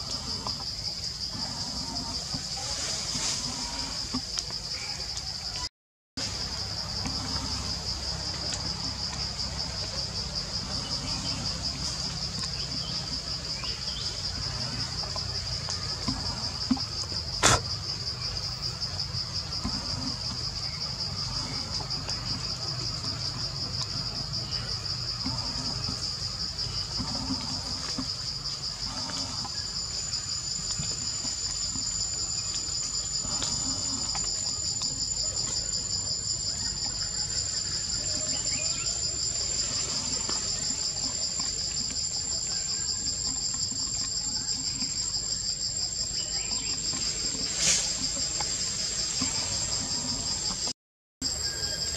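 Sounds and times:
insects pulsing drone: 0.0s - 51.9s
higher-pitched insect calling: 24.1s - 51.9s.

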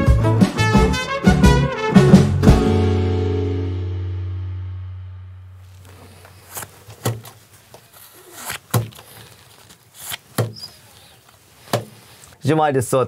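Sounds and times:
cards slapped on wooden table: 6.5s - 7.4s, 8.4s - 9.0s, 11.6s - 12.0s.

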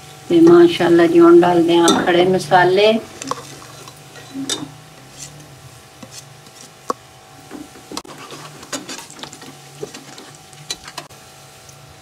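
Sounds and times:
metal ladle scraping and clinking: 3.2s - 5.4s, 6.0s - 6.8s, 7.9s - 11.1s.

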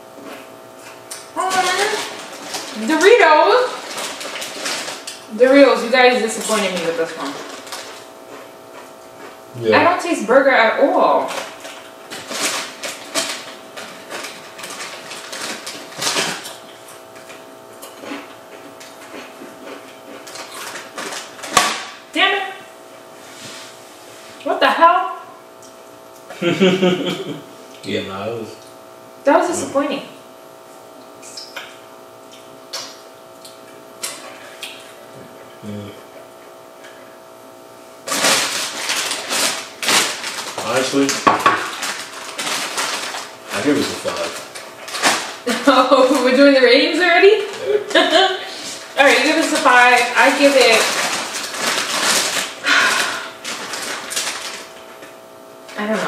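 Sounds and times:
chip bag crinkling: 0.4s - 9.4s, 11.2s - 22.0s, 38.0s - 56.0s.

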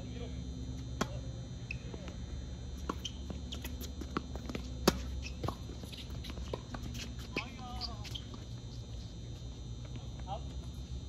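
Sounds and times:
shoes squeaking on court: 1.0s - 10.9s
racket hitting tennis ball: 2.8s - 7.5s
ball bouncing: 2.8s - 7.6s.

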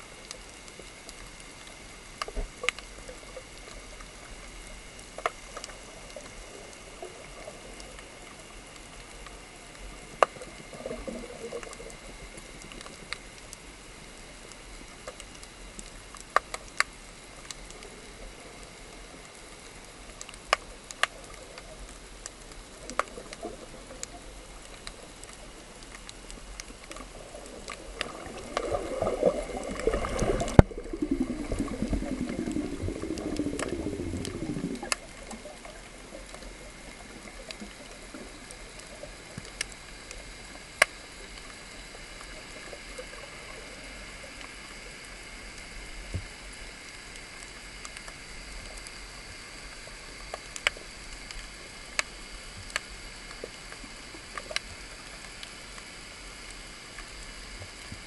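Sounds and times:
steady low underwater hiss: 0.0s - 58.0s
churning water: 27.6s - 36.8s.

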